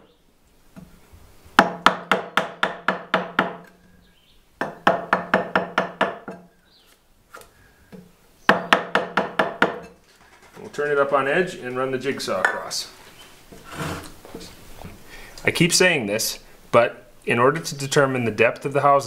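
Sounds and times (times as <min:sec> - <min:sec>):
wooden mallet striking chisel: 0:01.6 - 0:03.7, 0:04.6 - 0:06.5, 0:07.3 - 0:10.0.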